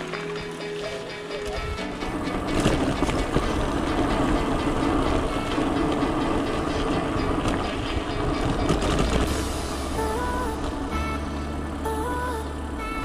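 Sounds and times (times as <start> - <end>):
bike rattling over stony trail: 0.0 - 11.2
wind noise: 0.0 - 11.4
tyre rumble: 0.8 - 9.8.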